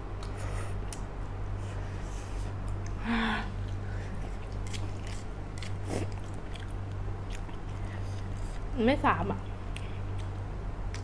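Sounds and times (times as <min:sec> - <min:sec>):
steady low hum: 0:00.0 - 0:11.0
wet chewing of noodles: 0:03.6 - 0:08.7.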